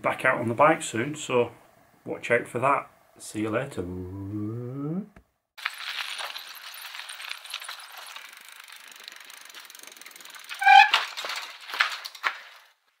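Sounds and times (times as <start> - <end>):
bicycle freewheel ticking: 5.6 - 12.8.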